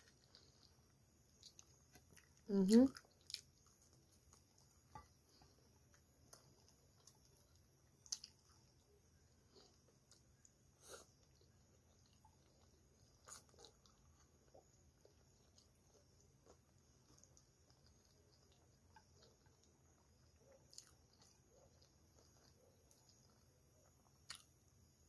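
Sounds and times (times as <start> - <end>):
person chewing: 0.0 - 24.8.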